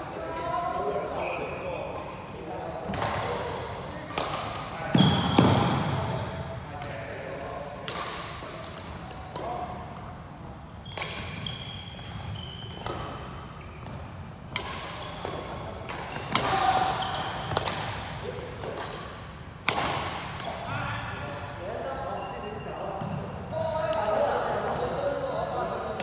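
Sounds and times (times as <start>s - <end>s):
shoe squeaks on court floor: 1.2s - 1.9s, 4.9s - 5.5s, 10.8s - 14.2s, 15.0s - 17.6s, 19.4s - 19.8s, 22.0s - 23.1s
rackets striking shuttlecock: 6.8s - 9.6s, 14.4s - 20.6s.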